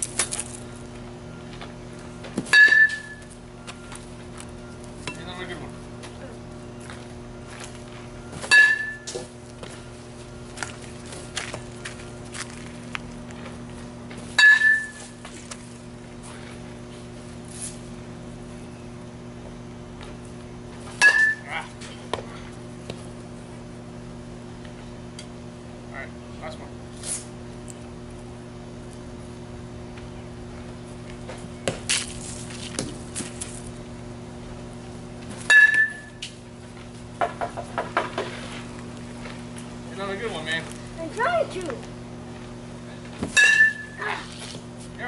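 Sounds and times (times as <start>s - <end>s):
bat hitting ball ping: 2.4s - 3.2s, 8.5s - 9.2s, 14.4s - 15.0s, 21.0s - 21.5s, 35.4s - 36.2s, 43.3s - 44.0s.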